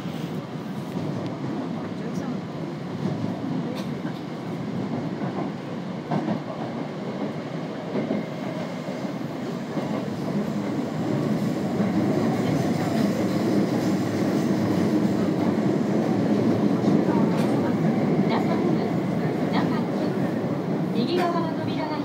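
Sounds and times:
train wheels rumbling on track: 0.0s - 22.0s
rail clicks: 3.0s - 8.7s, 9.7s - 20.3s, 21.0s - 22.0s.

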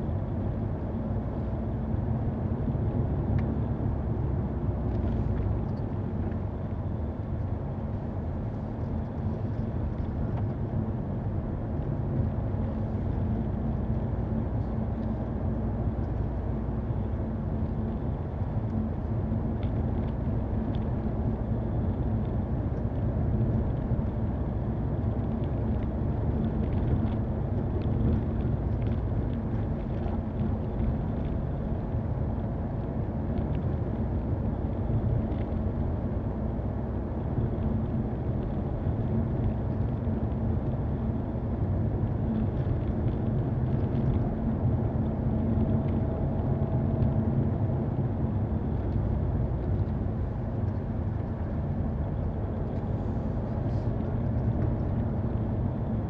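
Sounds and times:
car driving on gravel: 17.7s - 56.0s.

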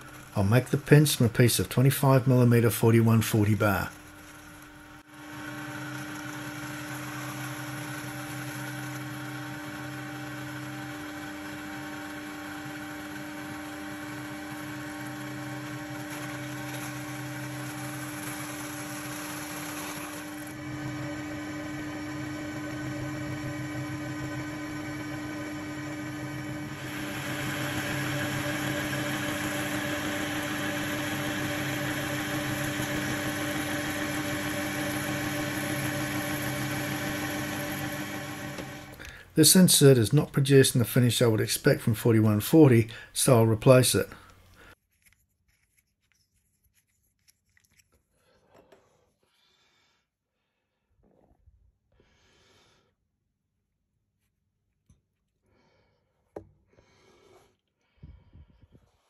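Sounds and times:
metal lathe hum: 0.0s - 39.2s
lathe cutting steel: 0.0s - 40.0s.

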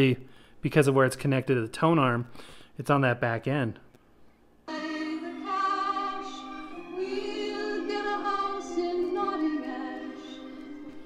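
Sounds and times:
woman singing on warbly vinyl record: 4.7s - 11.0s.

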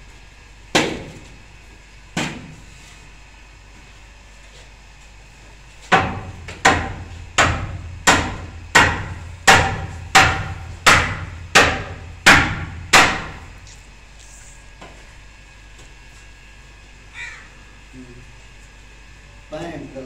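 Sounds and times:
hammer blows ringing: 5.9s - 13.5s.

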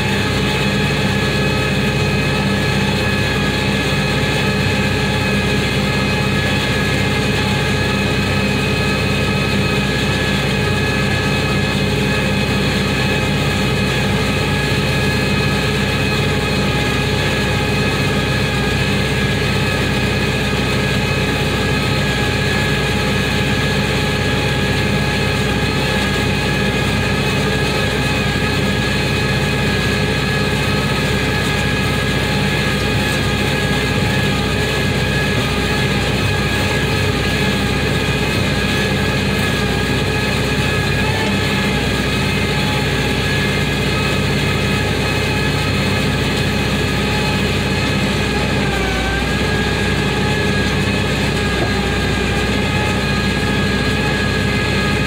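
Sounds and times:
baler machinery whining: 0.0s - 55.0s
tractor engine droning: 0.0s - 55.0s.

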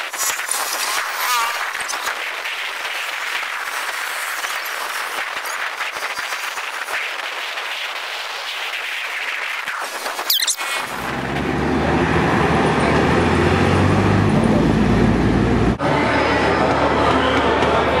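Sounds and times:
people clapping: 16.6s - 18.0s.

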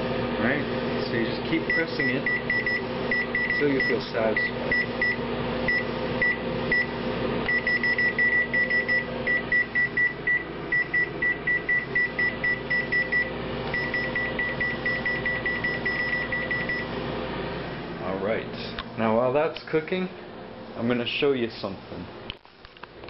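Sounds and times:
microwave keypad beeps: 1.7s - 6.9s, 7.5s - 16.9s.

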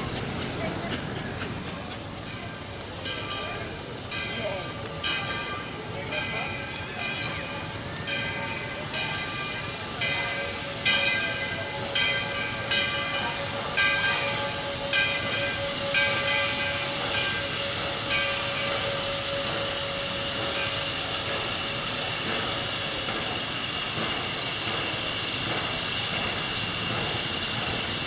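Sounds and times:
locomotive bell ringing: 2.2s - 27.4s
steam hissing: 6.8s - 28.0s.

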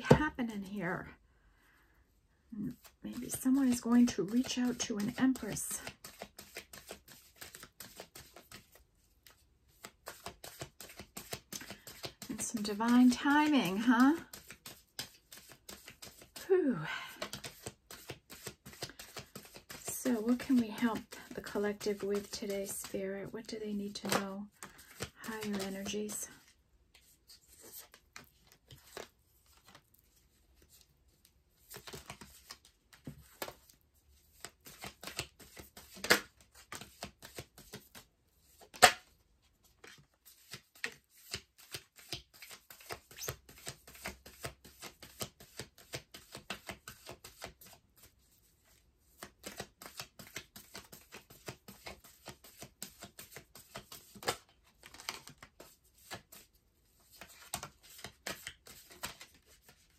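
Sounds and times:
cards being shuffled: 2.7s - 59.9s
sharp card snaps: 38.7s - 39.0s.

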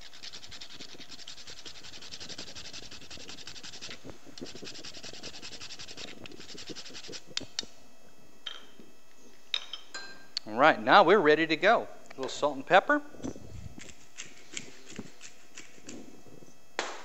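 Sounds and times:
cinnamon stick rasping on grater: 0.0s - 7.4s.

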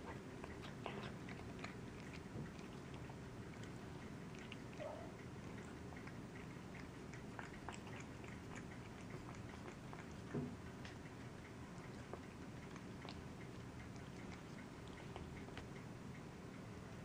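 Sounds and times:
cat chewing and licking: 0.0s - 17.0s
low steady hum: 0.0s - 17.0s.

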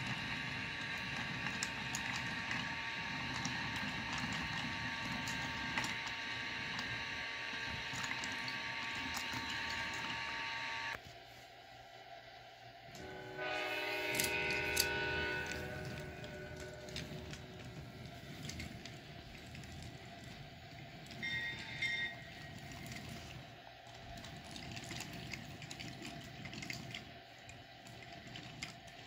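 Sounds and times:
toy train horn tones: 13.0s - 18.2s, 21.2s - 22.3s.

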